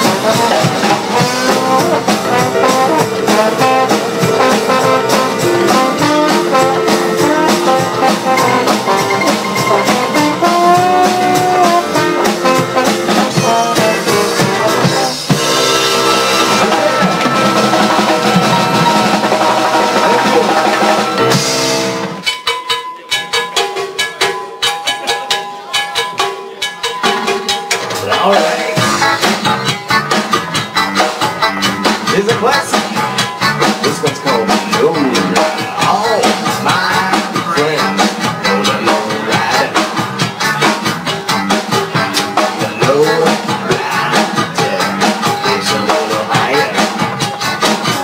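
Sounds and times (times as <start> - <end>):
trombone: 0.0 - 22.3, 28.2 - 48.0
live band playing: 0.0 - 48.0.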